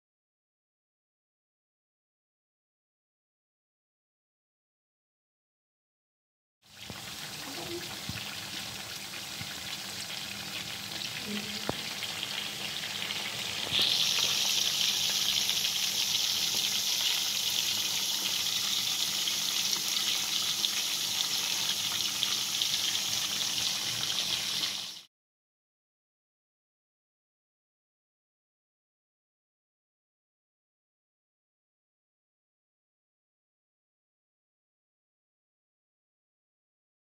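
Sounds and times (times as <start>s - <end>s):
chicken sizzling in hot oil: 6.6s - 25.1s.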